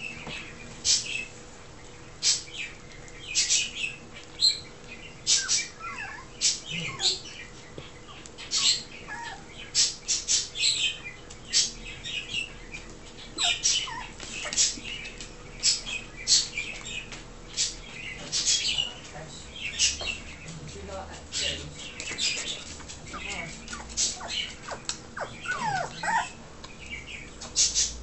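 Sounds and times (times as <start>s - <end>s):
puppies squeaking and clicking: 0.0s - 28.0s
puppies whimpering: 5.2s - 10.8s, 13.3s - 16.6s, 22.1s - 26.5s.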